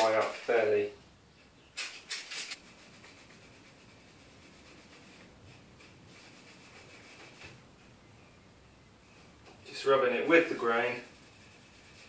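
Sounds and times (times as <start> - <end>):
cloth rubbing wood: 10.8 - 12.0.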